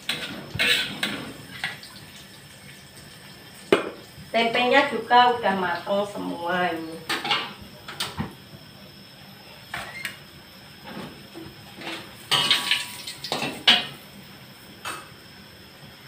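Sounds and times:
metal spatula scraping a wok: 0:00.0 - 0:01.5.

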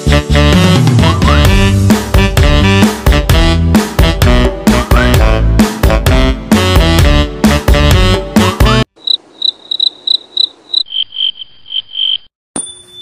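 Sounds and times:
music: 0:00.0 - 0:08.9
high insect trill: 0:09.0 - 0:12.3
insect chirping: 0:09.0 - 0:12.3.

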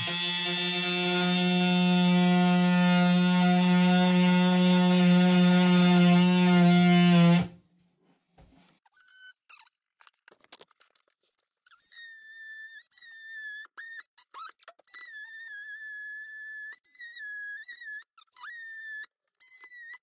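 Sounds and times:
oscillating multi-tool cutting: 0:00.0 - 0:07.5.

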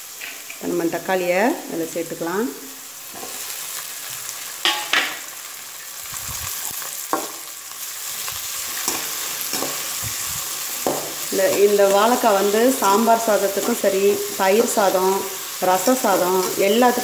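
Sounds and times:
vegetables sizzling in oil: 0:00.0 - 0:17.0
metal spoon scraping pan: 0:08.7 - 0:10.0.

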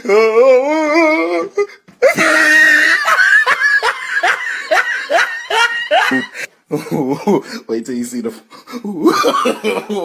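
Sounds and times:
person laughing hard: 0:02.0 - 0:07.4, 0:08.8 - 0:10.0.

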